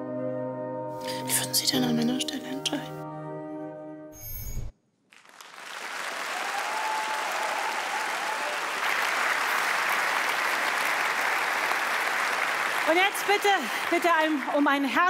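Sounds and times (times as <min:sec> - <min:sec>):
audience applause in a large hall: 0:05.1 - 0:15.0.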